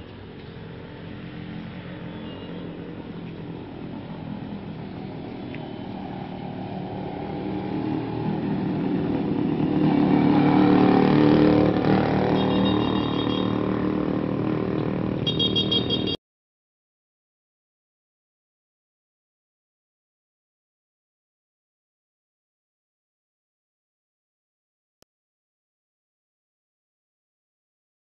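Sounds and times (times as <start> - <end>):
vehicle engine passing by: 0.5 - 15.2.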